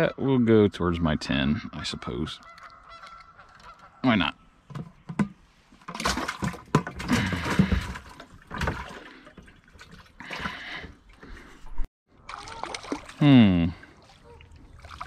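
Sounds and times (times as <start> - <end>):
fish splashing in bucket: 5.9 - 10.8, 12.2 - 13.3, 13.9 - 15.0.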